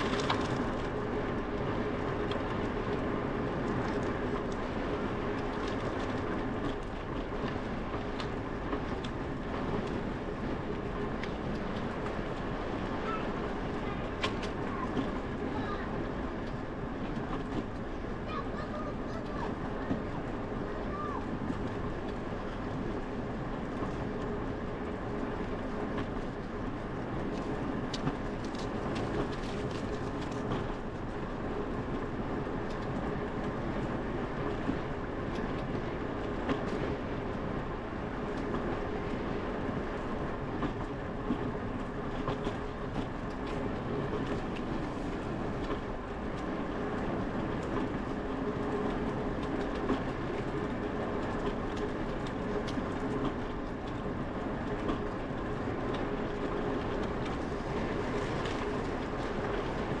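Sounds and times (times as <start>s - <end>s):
small clicks and rattles: 0.0s - 0.9s
bicycle rolling on concrete: 0.0s - 1.6s, 43.2s - 48.2s, 49.0s - 60.0s.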